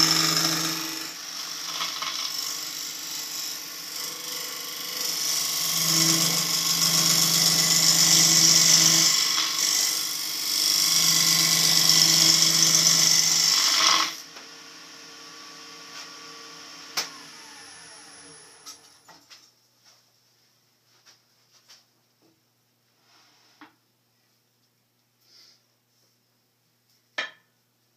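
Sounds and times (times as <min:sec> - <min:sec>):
lathe running hum: 0:00.0 - 0:19.0
lathe tool scraping wood: 0:00.0 - 0:19.1.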